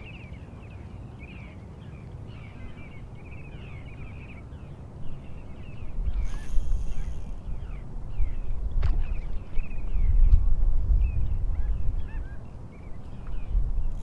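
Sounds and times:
birds chirping: 0.0s - 10.4s
wind rumbling on microphone: 0.0s - 14.0s.

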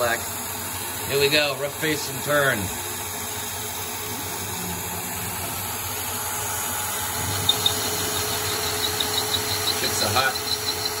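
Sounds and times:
coolant mist hissing: 0.0s - 11.0s
lathe spindle running: 0.0s - 11.0s
sharp machine clicks: 7.2s - 11.0s.

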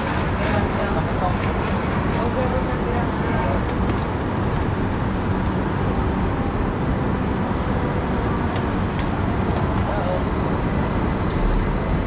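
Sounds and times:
shuttle interior rumble and hum: 0.0s - 12.0s.

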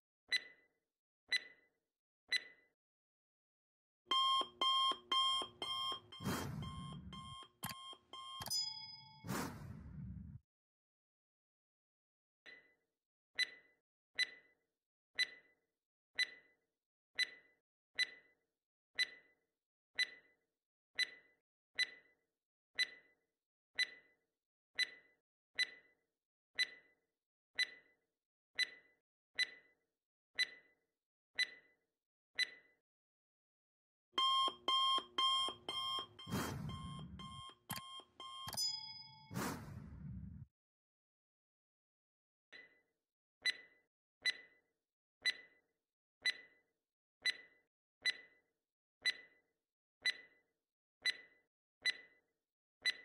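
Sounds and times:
alarm clock bell ringing: 4.1s - 9.3s, 34.2s - 39.4s
clock ticking: 4.1s - 9.6s, 34.2s - 39.8s.

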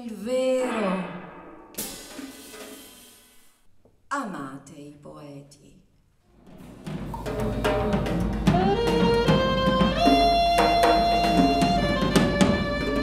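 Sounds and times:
drum strokes: 0.6s - 3.5s, 6.5s - 11.8s
saxophone notes: 8.0s - 13.0s.

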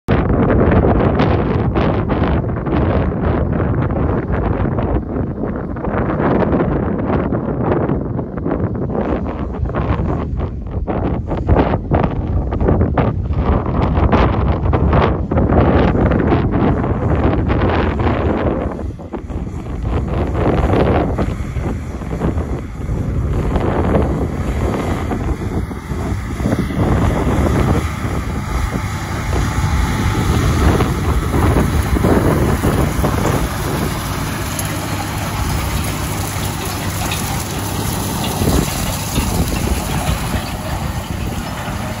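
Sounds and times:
wind buffeting microphone: 0.1s - 42.0s
tractor engine under load: 15.8s - 42.0s.

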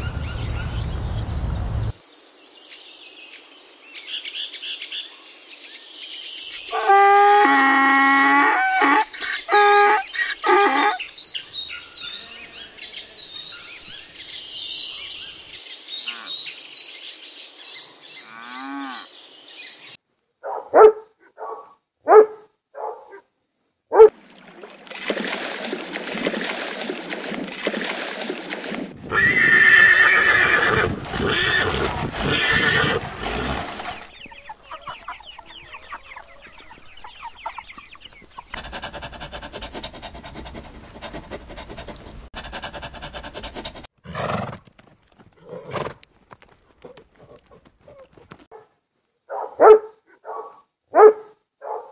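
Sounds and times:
donkey braying: 6.7s - 11.0s, 29.1s - 34.1s
dog barking: 20.4s - 23.3s, 23.9s - 24.1s, 48.5s - 51.9s.

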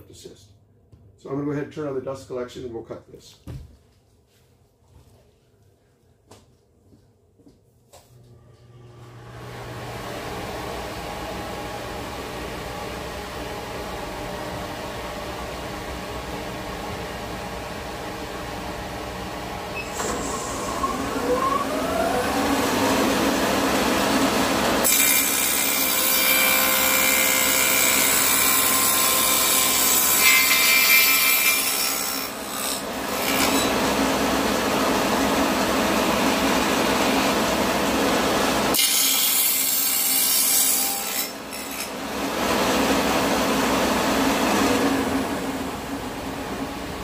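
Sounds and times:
dust collector running: 8.2s - 30.0s, 32.4s - 38.8s, 41.4s - 47.0s
table saw blade whine: 19.1s - 47.0s
saw cutting wood board: 20.0s - 45.0s.

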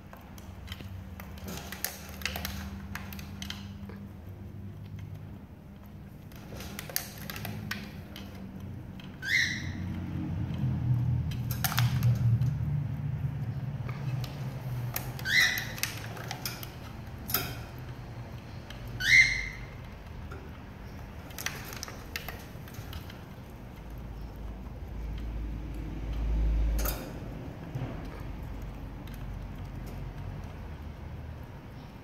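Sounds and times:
parrot squeaking: 9.2s - 9.9s, 15.2s - 15.9s, 19.0s - 19.8s.

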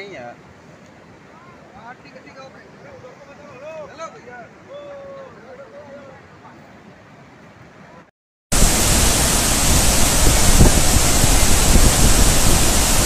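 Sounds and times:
river floodwater rushing: 8.5s - 13.0s.

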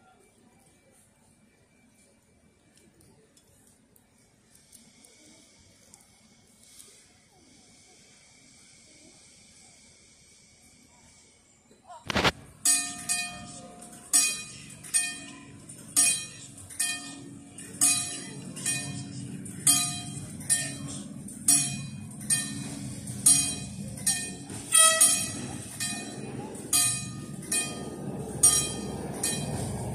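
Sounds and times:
level crossing bell ringing: 12.6s - 29.9s.

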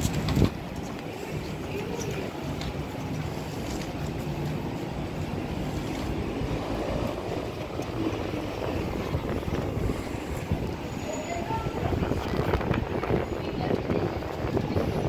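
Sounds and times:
street traffic rumble: 0.0s - 15.0s
wind on microphone: 5.7s - 15.0s.

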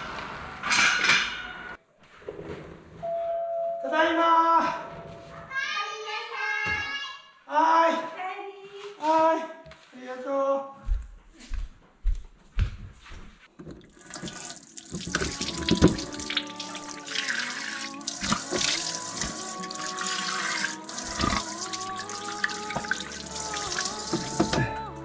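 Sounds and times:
tap running into washbasin: 13.6s - 24.8s
water splashing on face: 13.8s - 24.9s.

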